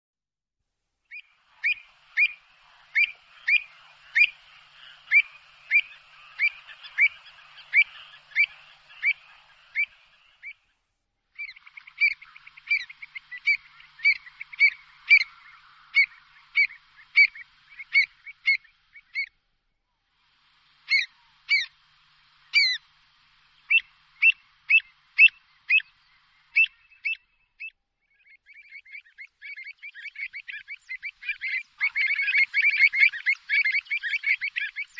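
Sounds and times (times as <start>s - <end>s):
bird sharp calls: 1.1s - 10.8s, 11.4s - 19.4s, 20.4s - 34.9s.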